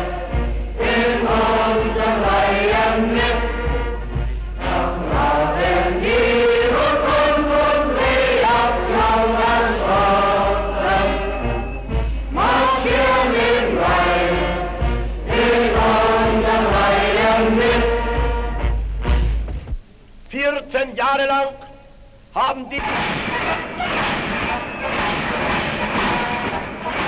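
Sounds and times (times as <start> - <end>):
choir singing in unison: 0.0 - 18.8, 22.9 - 27.0
steady low hum: 0.0 - 20.4.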